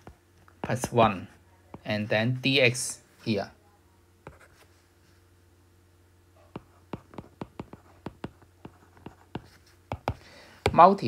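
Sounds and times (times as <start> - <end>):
stylus tapping on glass screen: 6.6 - 10.8.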